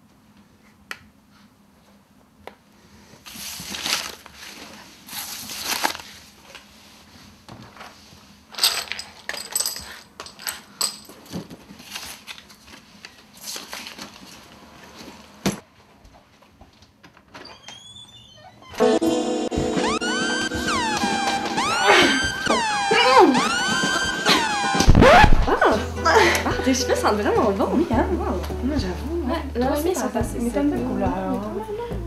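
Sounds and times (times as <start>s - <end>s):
clatter and light clinks: 8.5s - 11.5s.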